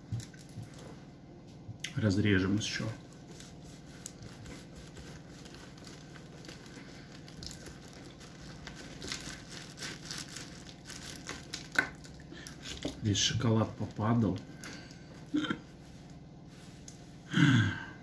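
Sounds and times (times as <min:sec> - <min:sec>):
crust crackling and crumbling: 0:05.1 - 0:12.9.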